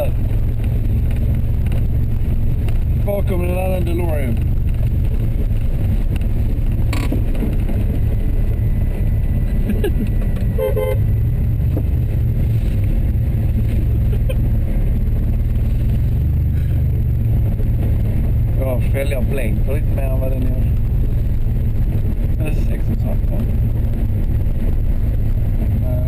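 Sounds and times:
idling vehicles rumbling: 0.0 - 26.0
car horn toot: 10.5 - 11.1.

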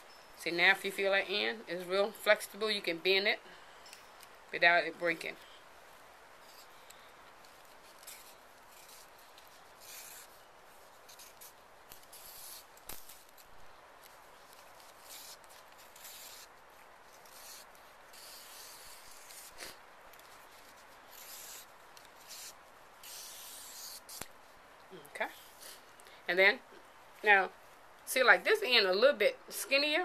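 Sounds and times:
knife blade scraping plant strip: 6.4 - 24.3.

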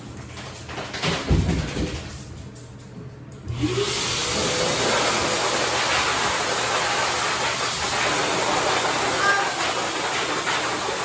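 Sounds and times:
dryer motor whine: 3.0 - 11.0.

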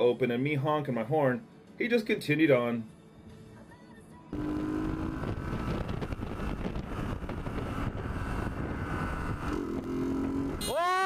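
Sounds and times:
motorcycle running: 4.3 - 10.8
wind buffeting microphone: 4.8 - 10.6.

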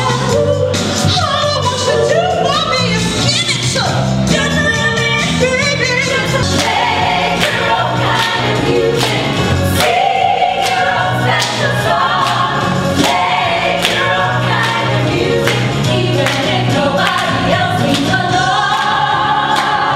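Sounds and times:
pop soul band: 0.0 - 19.9
women singing together: 6.1 - 19.9.

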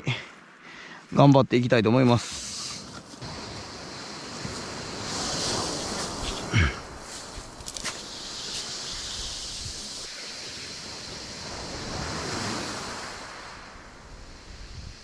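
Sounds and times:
sea surf washing on shore: 2.2 - 15.0
wind on microphone: 3.2 - 15.0.

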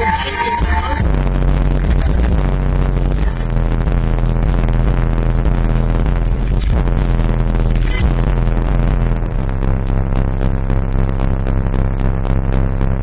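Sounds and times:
subwoofer playing buzzy bass: 0.0 - 13.0.

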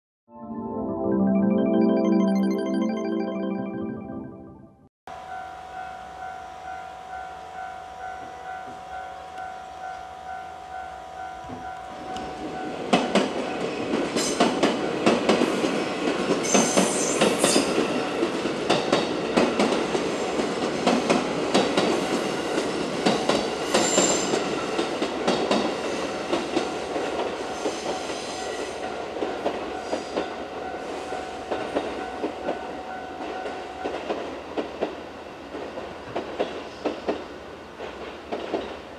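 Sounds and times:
level crossing warning bell: 5.1 - 13.9, 29.4 - 34.1
train wheels clicking over rail joints: 11.5 - 38.9.

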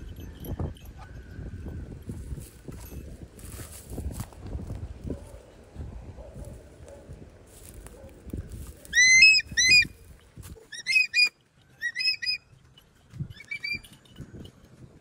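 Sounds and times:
eagle yelping: 8.9 - 9.9, 10.6 - 12.4, 13.4 - 13.9.

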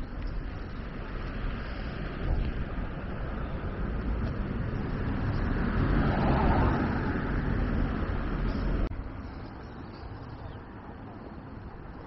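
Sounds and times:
vehicle passing by: 1.0 - 9.0.

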